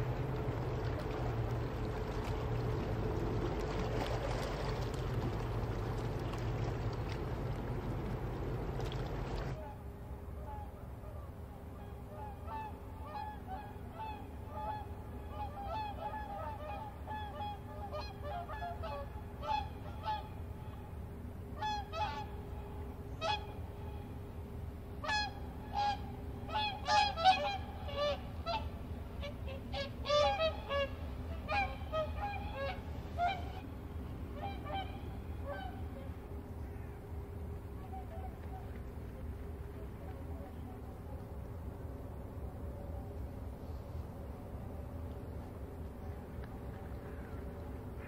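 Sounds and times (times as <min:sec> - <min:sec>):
low hum: 0:00.0 - 0:48.0
geese honking: 0:25.0 - 0:33.7.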